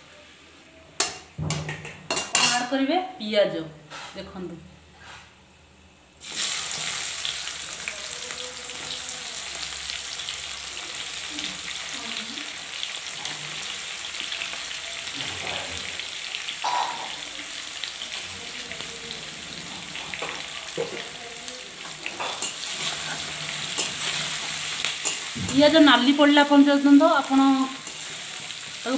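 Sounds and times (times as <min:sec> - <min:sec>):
onions sizzling in oil: 0:06.2 - 0:28.9.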